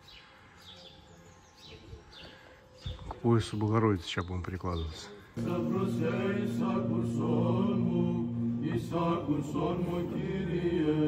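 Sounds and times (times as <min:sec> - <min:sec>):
men chanting a hymn: 0:05.3 - 0:11.0
held drone note: 0:05.4 - 0:11.0.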